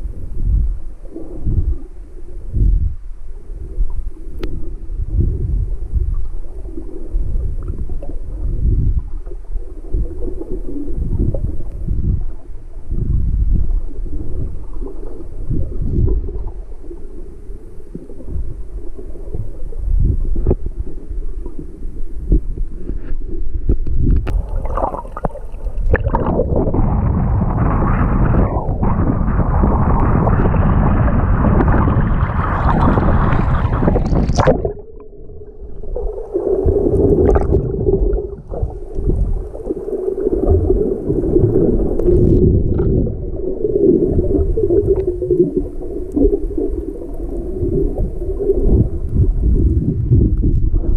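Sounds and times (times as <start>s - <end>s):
choppy sea waves: 0.0s - 50.9s
muffled underwater rumble: 0.0s - 50.9s
water splashing: 24.3s - 49.8s.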